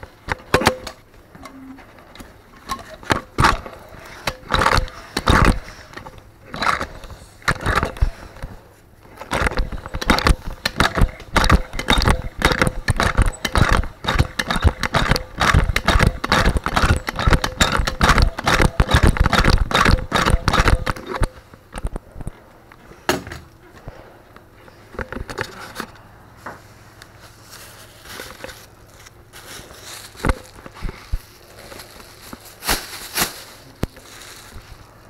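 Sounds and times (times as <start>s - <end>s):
tool scraping and breaking drywall: 9.3s - 21.3s.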